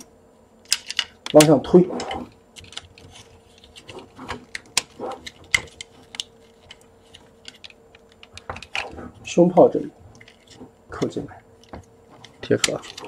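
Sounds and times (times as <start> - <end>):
plastic parts clicking into place: 0.6 - 9.0.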